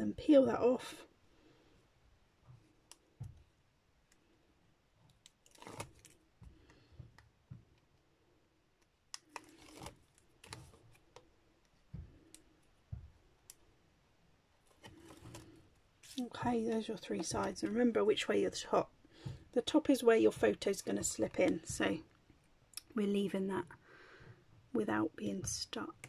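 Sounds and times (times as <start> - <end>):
paper and tape rustling: 5.3 - 6.2, 9.3 - 11.2.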